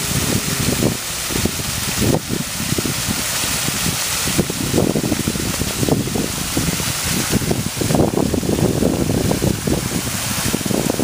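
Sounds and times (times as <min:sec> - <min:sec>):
water rushing and splashing: 0:00.0 - 0:11.0
wind buffeting microphone: 0:00.0 - 0:11.0.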